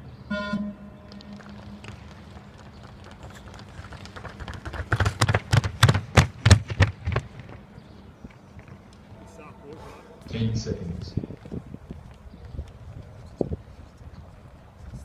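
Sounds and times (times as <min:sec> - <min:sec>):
running shoes on wooden floor: 0:01.6 - 0:07.6.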